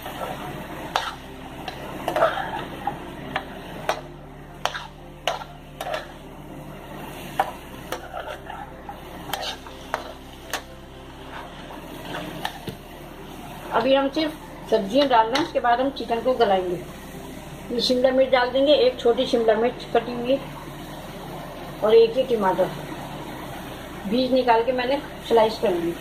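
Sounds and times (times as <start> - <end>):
spatula scraping a metal pan: 0.0 - 6.2, 7.3 - 12.8
food frying in a pan: 0.0 - 26.0
low steady hum: 0.0 - 26.0.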